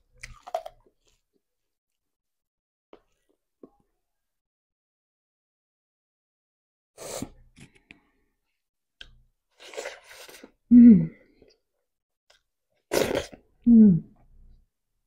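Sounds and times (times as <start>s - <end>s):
chewing and mouth noises: 0.2s - 1.2s
person humming: 10.7s - 11.2s, 13.7s - 14.1s.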